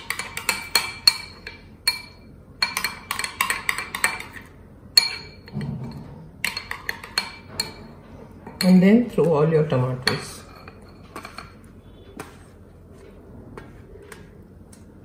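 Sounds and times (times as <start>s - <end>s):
spoon clinking in glass bowl: 0.0s - 7.8s.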